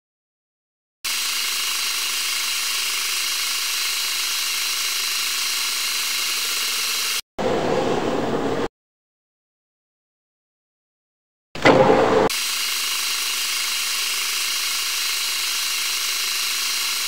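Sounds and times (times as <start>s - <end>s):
metal lathe cutting: 1.1s - 7.2s, 12.2s - 17.0s.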